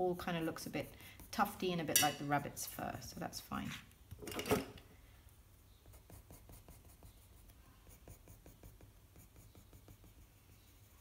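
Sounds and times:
pencil scratching on paper: 0:00.0 - 0:02.4, 0:05.8 - 0:11.0.

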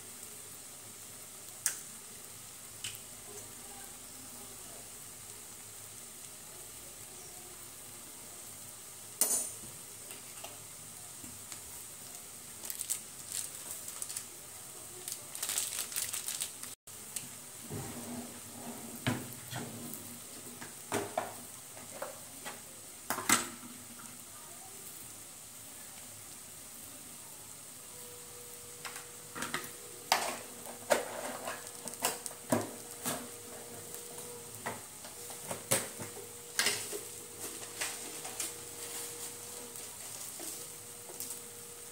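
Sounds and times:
noodles sizzling in a frying pan: 0:00.0 - 0:41.9.

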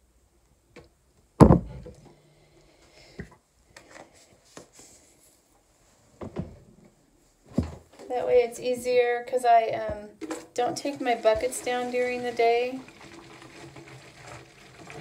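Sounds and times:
containers thumping on hard surface: 0:01.4 - 0:02.0, 0:09.9 - 0:11.7.

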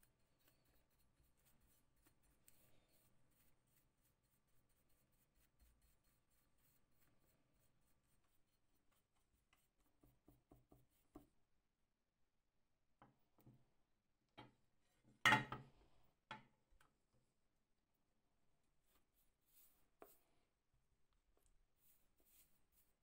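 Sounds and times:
paintbrush scratching on steel: 0:00.0 - 0:11.3, 0:18.8 - 0:20.2, 0:21.8 - 0:23.0.

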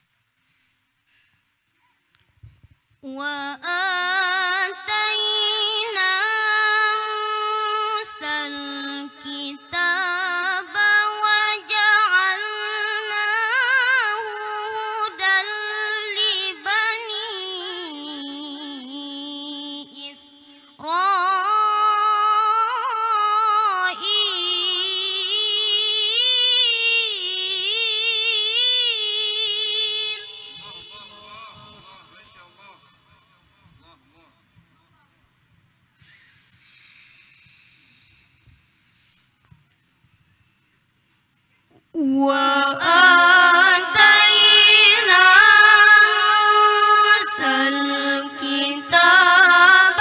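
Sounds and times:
boy reciting melodically: 0:03.0 - 0:34.5, 0:41.7 - 0:50.0.

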